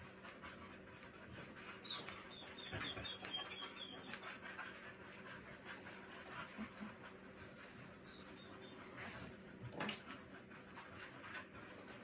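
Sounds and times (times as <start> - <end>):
puppy whimpering: 1.6 - 4.7, 8.0 - 9.3.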